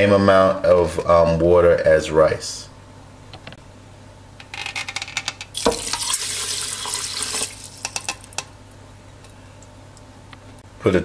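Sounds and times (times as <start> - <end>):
water pouring into a pot: 5.6 - 8.3.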